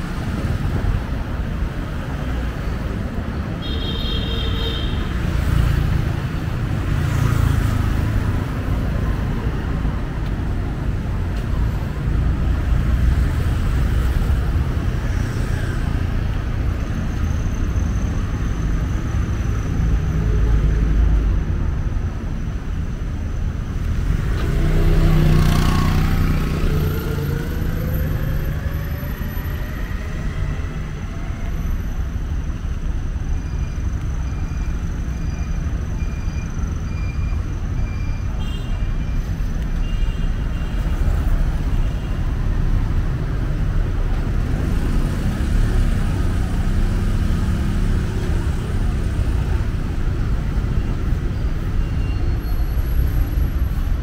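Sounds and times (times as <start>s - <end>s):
traffic rumble: 0.0s - 54.0s
vehicle passing and accelerating: 23.9s - 31.2s, 44.3s - 50.6s.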